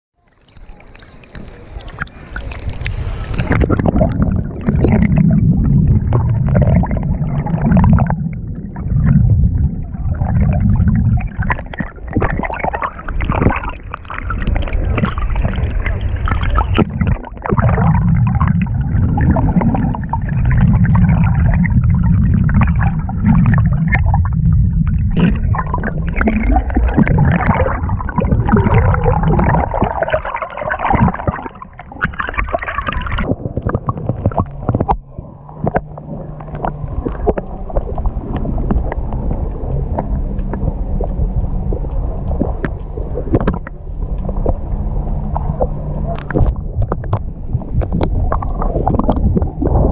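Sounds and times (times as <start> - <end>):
water sloshing and gurgling: 0.2 - 49.9
knocks and splashes: 10.1 - 44.6.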